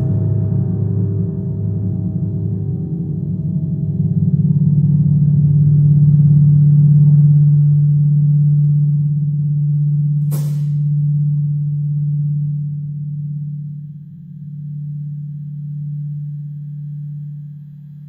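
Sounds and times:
deep electronic drone: 0.0s - 18.0s
short sharp hiss: 10.3s - 10.8s.

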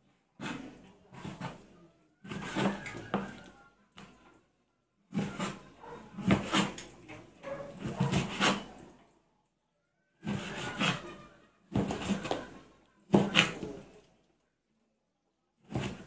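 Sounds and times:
knife slicing on cutting board: 6.2s - 6.8s, 7.8s - 8.7s.

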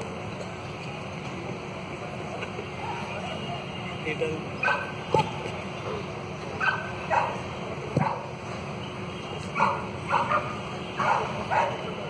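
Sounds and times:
dog barking: 4.6s - 4.9s, 6.6s - 7.4s, 8.0s - 8.3s, 9.6s - 11.8s.

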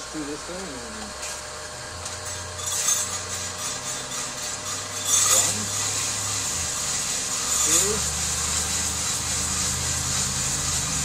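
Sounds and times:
beans rattling in metal sifter: 2.2s - 11.0s.

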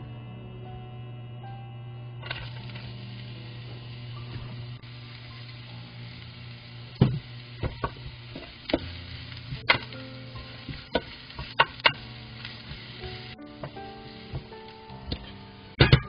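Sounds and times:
spatula knocking on frying pan: 10.6s - 12.0s.

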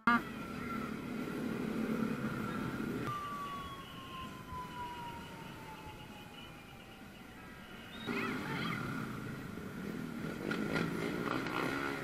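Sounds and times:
long high tone dropping in pitch: 2.4s - 8.9s
motorcycles riding past: 4.7s - 12.0s.

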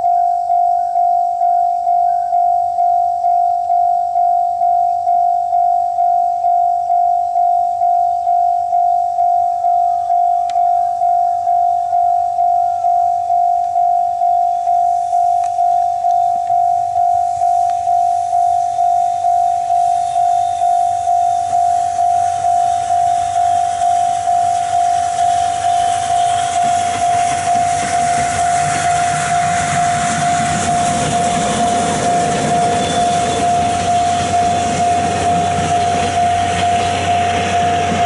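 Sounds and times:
level crossing bell ringing: 0.0s - 38.0s
steam train passing over tracks: 14.1s - 38.0s.

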